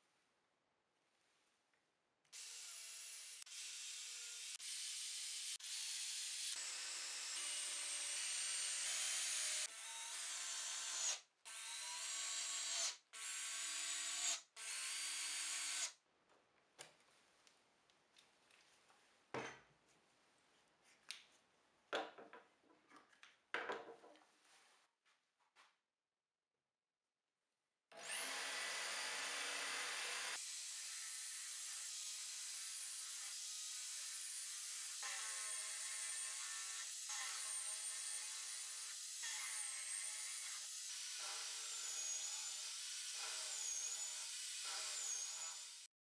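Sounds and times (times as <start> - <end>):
electric drill motor whining: 28.0 - 30.4.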